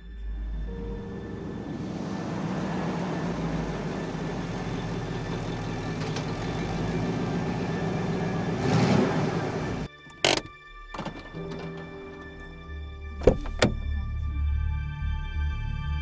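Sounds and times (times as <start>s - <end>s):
truck engine idling: 0.4s - 12.6s.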